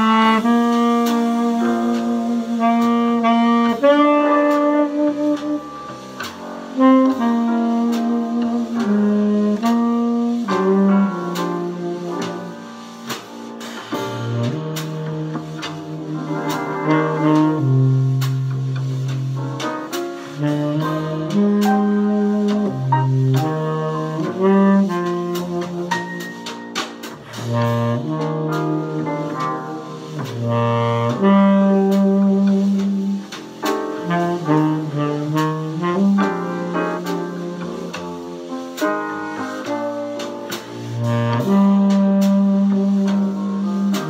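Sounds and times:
tenor saxophone jazz ballad: 0:00.0 - 0:44.0.

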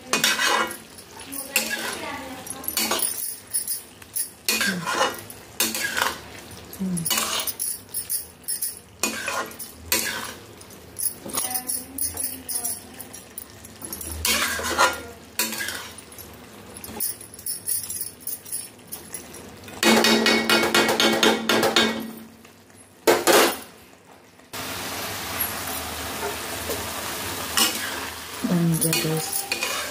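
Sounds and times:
metal spatula scraping a pan: 0:00.0 - 0:02.0, 0:04.5 - 0:06.2, 0:09.0 - 0:10.4, 0:14.2 - 0:16.0, 0:28.9 - 0:29.9.

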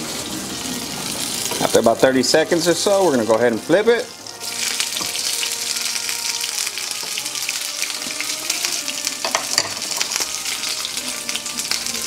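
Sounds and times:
hot oil sizzling and crackling: 0:00.0 - 0:12.0
oil popping: 0:04.2 - 0:11.9.

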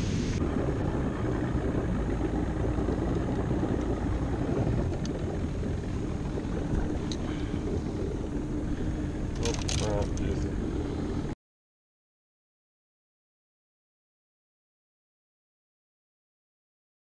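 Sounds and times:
outboard motor running: 0:00.0 - 0:11.4
water against boat hull: 0:00.0 - 0:11.4.

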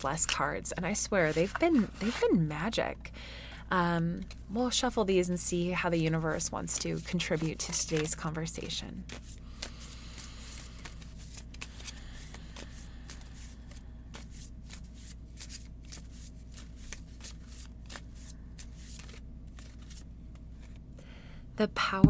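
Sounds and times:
cards being shuffled: 0:00.1 - 0:02.4, 0:04.2 - 0:04.5, 0:06.0 - 0:20.8.

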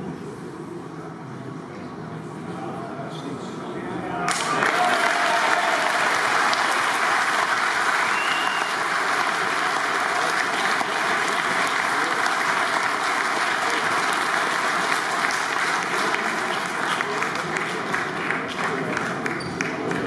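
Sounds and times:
audience applauding: 0:04.3 - 0:20.0.

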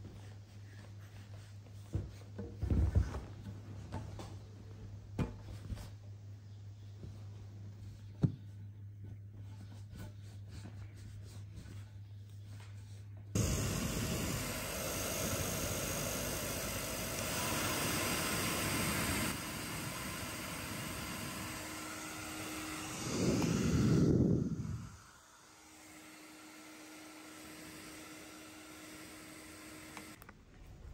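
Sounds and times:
blow dryer rushing hiss: 0:13.4 - 0:30.2.

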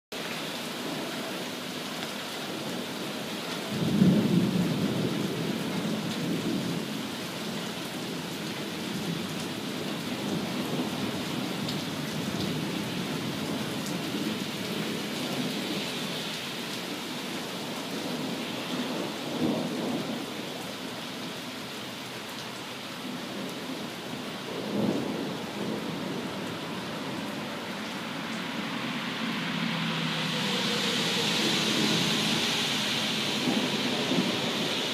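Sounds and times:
heavy rain falling: 0:00.1 - 0:34.9
thunder rumbling: 0:28.6 - 0:34.9.

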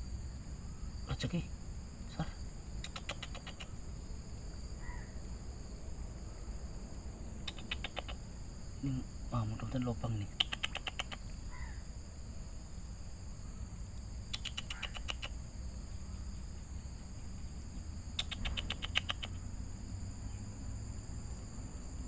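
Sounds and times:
insect chorus buzz: 0:00.0 - 0:22.0
rapid chirping trill: 0:07.4 - 0:08.3, 0:14.3 - 0:15.4, 0:18.1 - 0:19.5.

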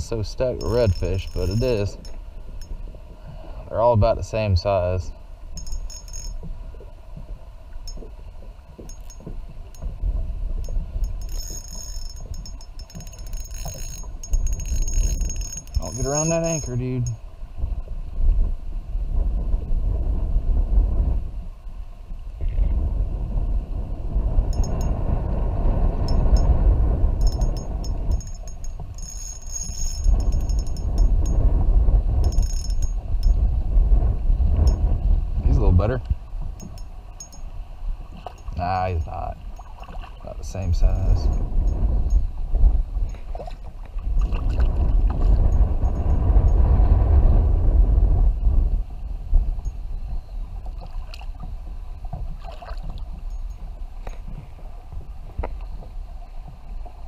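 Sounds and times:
wind buffeting microphone: 0:00.0 - 0:57.0
fishing reel drag clicking: 0:00.6 - 0:02.8, 0:05.6 - 0:06.4, 0:10.6 - 0:17.2, 0:27.2 - 0:31.4, 0:32.2 - 0:33.4.

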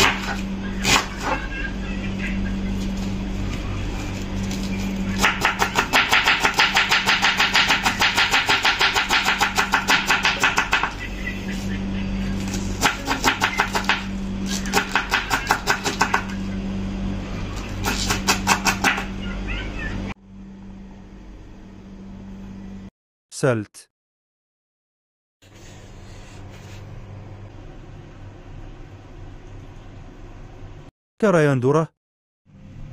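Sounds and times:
steady low hum: 0:00.0 - 0:22.9, 0:25.4 - 0:30.9.

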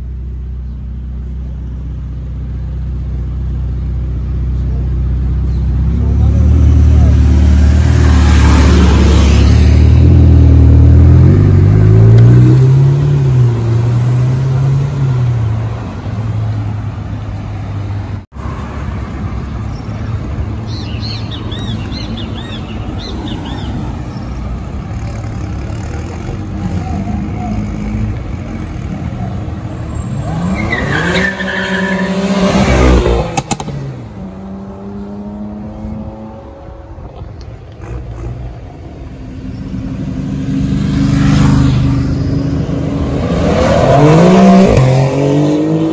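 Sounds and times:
street traffic: 0:00.0 - 0:45.9
car accelerating hard: 0:40.5 - 0:45.9.

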